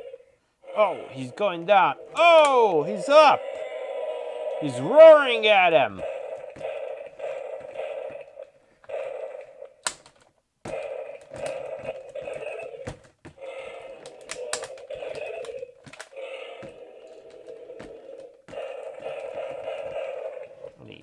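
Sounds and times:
toy growling roar: 0:00.0 - 0:09.8, 0:10.7 - 0:20.8
plastic toys clacking together: 0:09.8 - 0:10.3, 0:13.9 - 0:17.5.

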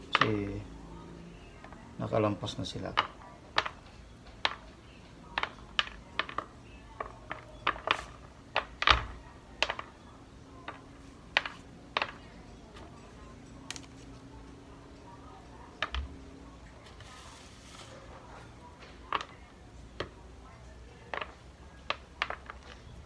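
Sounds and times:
berries clicking into a dish: 0:02.4 - 0:10.0, 0:10.6 - 0:12.4, 0:13.6 - 0:14.2, 0:18.8 - 0:23.0.

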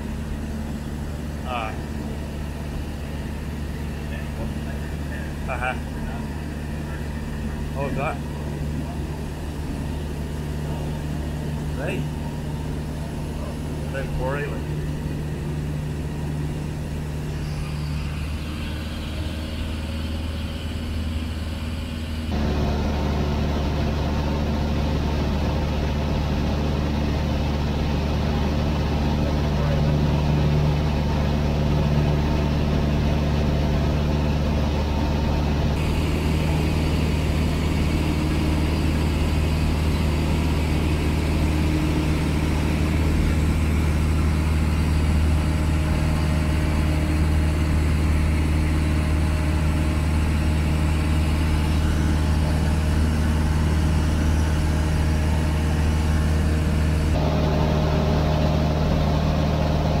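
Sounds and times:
light aircraft engine drone in cabin: 0:00.0 - 1:00.0.

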